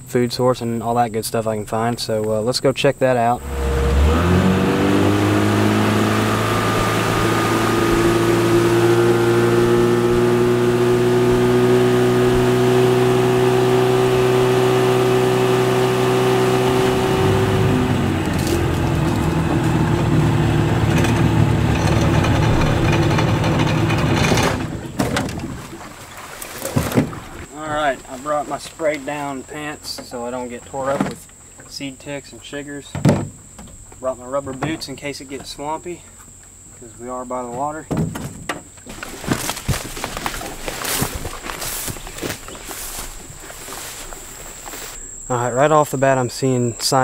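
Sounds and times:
boat motor running: 0:03.4 - 0:31.4, 0:38.6 - 0:45.3.

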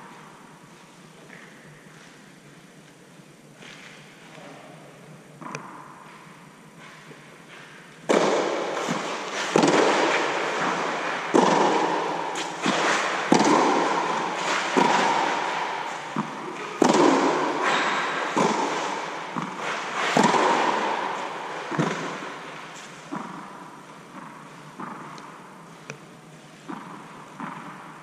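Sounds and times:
tennis balls struck by rackets: 0:05.4 - 0:06.2, 0:07.6 - 0:26.0, 0:26.6 - 0:28.0
tennis balls bouncing on court: 0:05.4 - 0:26.0, 0:26.6 - 0:28.0.

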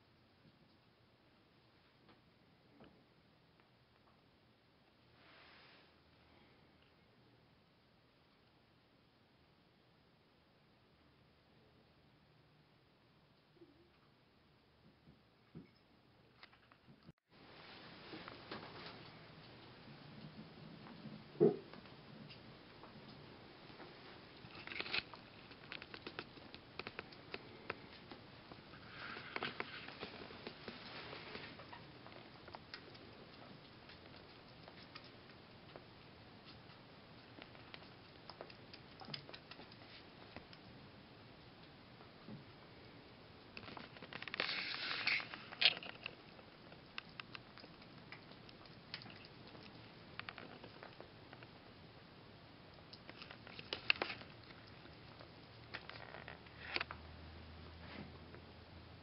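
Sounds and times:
rustling: 0:16.5 - 0:40.8, 0:43.5 - 0:51.8
small animals clicking: 0:24.3 - 0:41.8, 0:43.4 - 0:51.6, 0:52.7 - 0:57.0.

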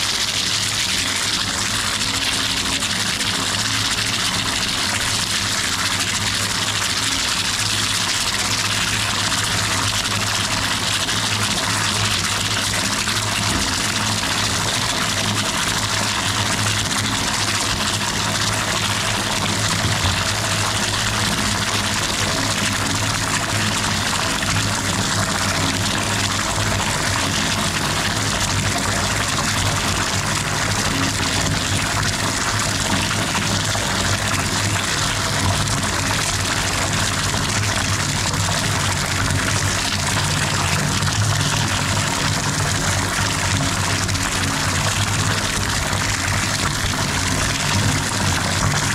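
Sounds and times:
water pouring into bathtub: 0:00.0 - 0:48.9.

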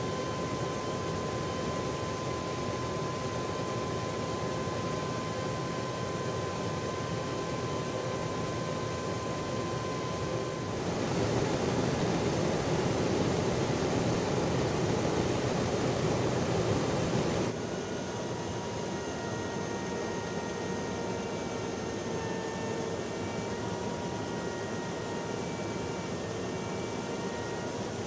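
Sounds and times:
jet engines and airflow roaring: 0:00.0 - 0:28.0
faint whine: 0:07.7 - 0:17.5.

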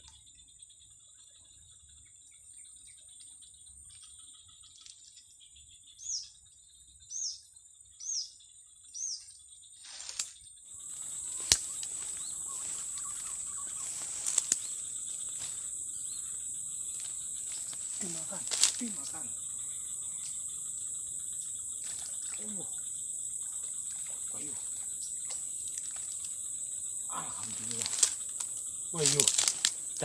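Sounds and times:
insects buzzing: 0:00.0 - 0:30.0.

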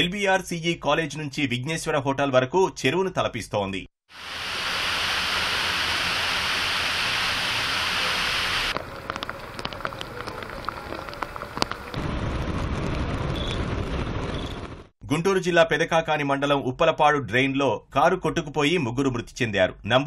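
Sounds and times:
rainwater rushing down steps: 0:04.1 - 0:14.8
water clicks and splashes: 0:08.7 - 0:12.0.

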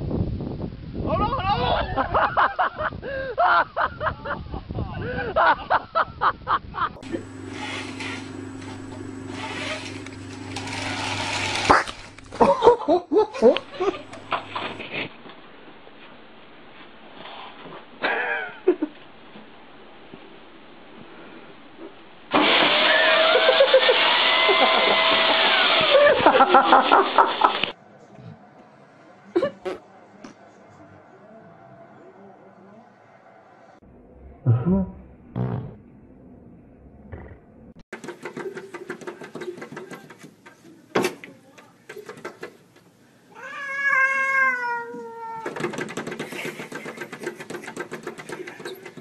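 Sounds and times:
vacuum cleaner running: 0:07.0 - 0:12.6, 0:13.6 - 0:14.8, 0:22.3 - 0:27.7, 0:46.2 - 0:49.0
rapid clicking or tapping: 0:37.9 - 0:40.6, 0:45.4 - 0:49.0
cat meowing: 0:43.3 - 0:45.5.

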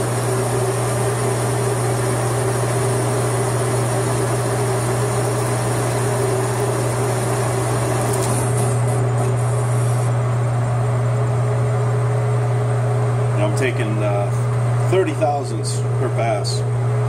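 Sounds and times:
metal lathe turning cut: 0:00.0 - 0:10.1
steady low hum: 0:00.0 - 0:17.0.

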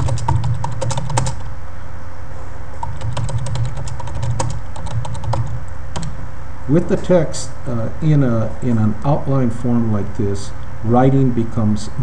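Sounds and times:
keyboard typing clicks: 0:00.0 - 0:01.5, 0:02.8 - 0:06.2.

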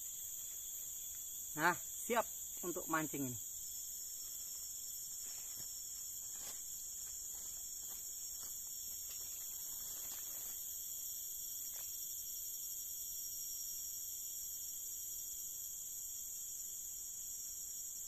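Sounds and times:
insect chorus buzzing: 0:00.0 - 0:18.0
rustles on leaf litter: 0:09.0 - 0:10.7.

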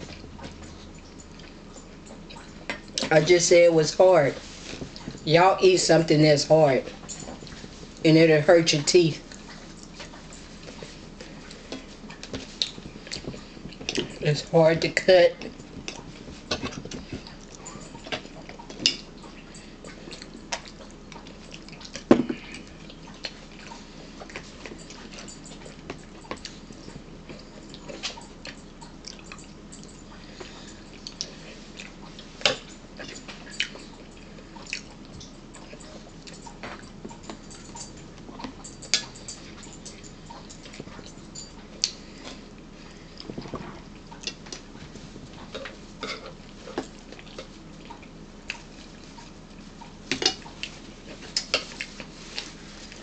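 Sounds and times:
chewing crackers: 0:15.4 - 0:53.0.

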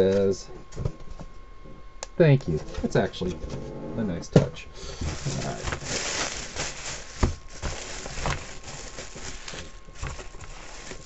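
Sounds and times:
bubble wrap crinkling: 0:04.9 - 0:11.0.

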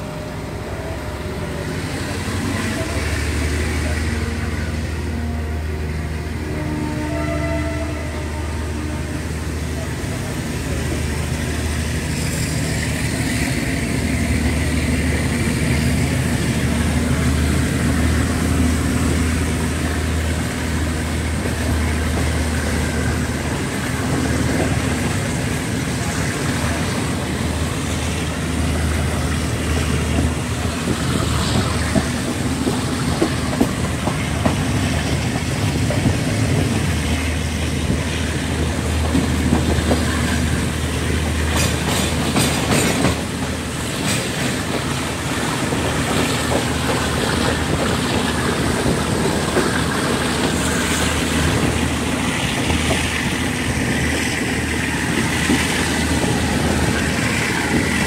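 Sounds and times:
train low drone: 0:00.0 - 0:58.0
wheels clicking over rail joints: 0:41.2 - 0:58.0.

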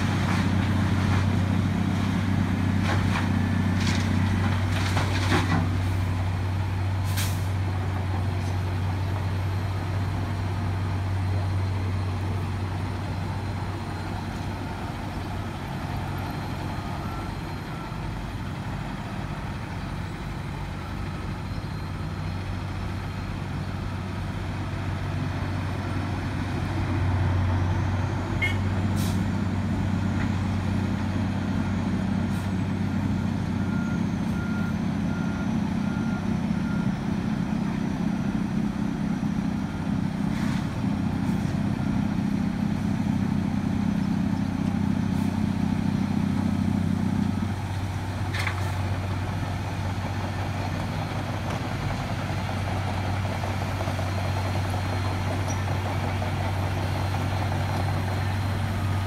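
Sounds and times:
diesel machinery and trucks running: 0:00.0 - 0:59.0
reversing alarm beeping: 0:32.8 - 0:40.2.

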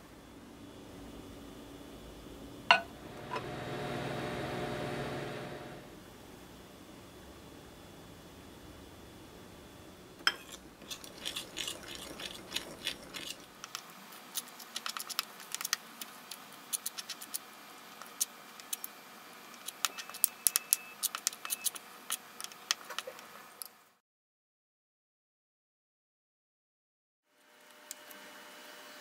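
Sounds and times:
metal spoon scraping ceramic bowl: 0:10.3 - 0:13.5.

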